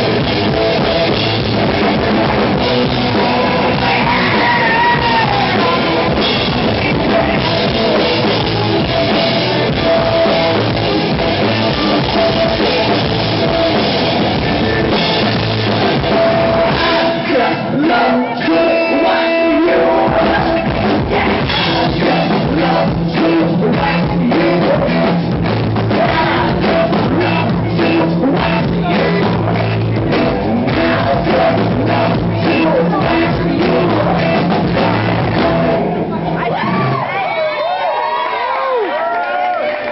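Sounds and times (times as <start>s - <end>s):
drum kit: 0.0s - 37.1s
electric guitar: 0.0s - 39.9s
vocals: 0.0s - 39.9s.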